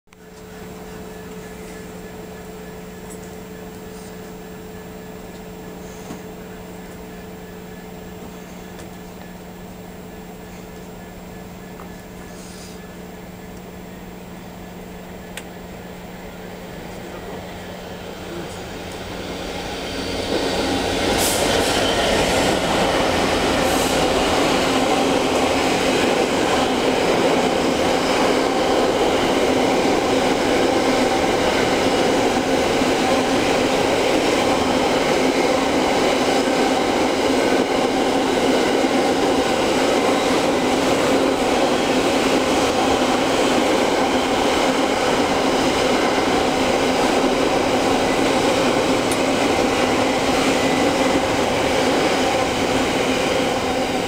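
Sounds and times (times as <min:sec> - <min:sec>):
train passing: 0:00.2 - 0:54.0
wheel-and-rail noise: 0:14.4 - 0:54.0.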